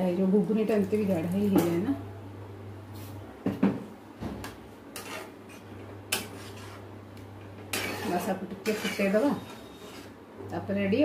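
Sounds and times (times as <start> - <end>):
utensils knocking and scraping a pan: 4.4 - 6.8, 7.4 - 10.2.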